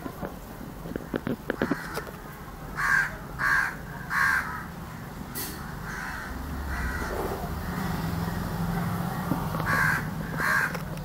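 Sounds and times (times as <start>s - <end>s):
crow cawing: 1.6s - 2.1s, 2.8s - 8.6s, 9.6s - 10.8s.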